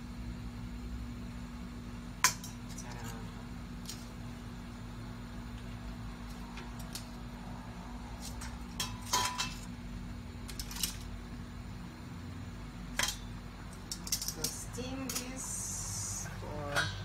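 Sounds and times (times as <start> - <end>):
metal tongs clinking on pot: 13.0 - 15.6, 16.6 - 17.0.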